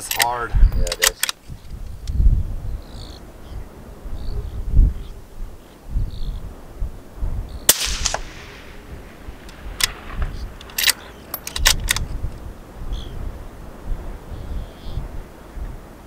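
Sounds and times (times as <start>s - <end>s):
rifle bolt clicks: 0.0s - 1.4s, 7.7s - 8.8s, 9.4s - 12.1s
wind buffeting microphone: 0.0s - 16.0s
rifle shot: 7.7s - 12.0s.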